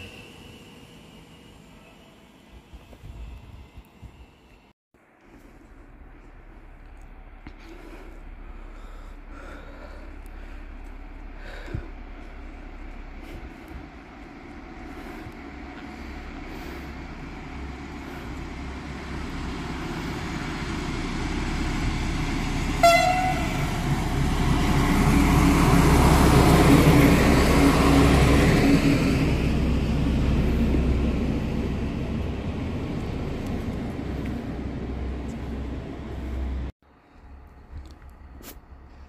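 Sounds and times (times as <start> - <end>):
diesel locomotive passing: 0.0 - 36.8
train horn toot: 22.8 - 23.8.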